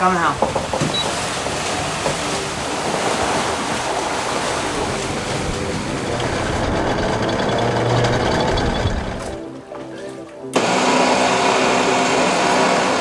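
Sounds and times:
wind and water rushing: 0.0s - 9.4s.

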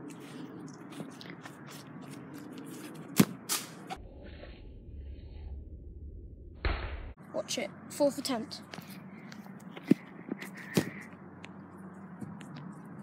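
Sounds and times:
low rumble: 3.9s - 7.2s.

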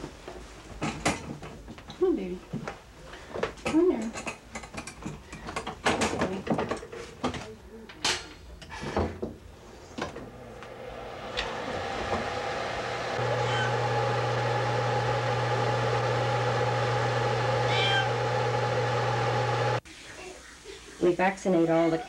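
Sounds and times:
low hum with hiss: 9.4s - 13.7s, 17.6s - 18.1s
cat mewing: 13.2s - 13.9s, 17.6s - 18.2s.

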